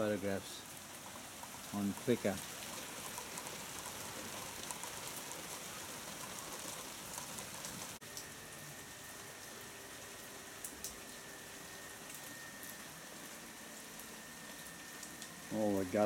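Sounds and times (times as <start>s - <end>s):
steady rain on foliage: 0.0s - 16.0s
close water drips ticking: 0.6s - 8.3s, 13.6s - 16.0s.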